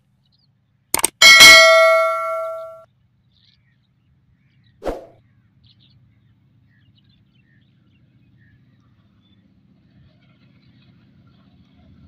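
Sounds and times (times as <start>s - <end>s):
bell-like ding: 1.0s - 2.8s
short whoosh: 4.8s - 5.2s.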